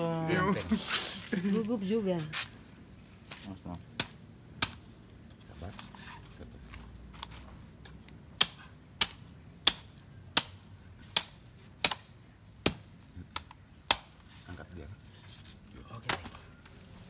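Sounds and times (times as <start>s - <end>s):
machete chopping meat: 4.0s - 4.8s, 8.4s - 14.1s.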